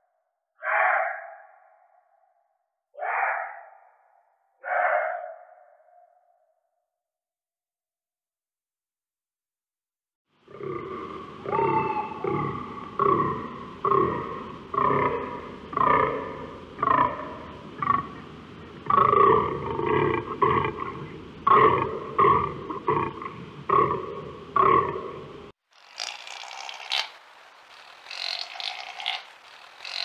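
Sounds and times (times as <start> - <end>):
deer rutting calls: 10.5 - 24.9, 26.0 - 30.0.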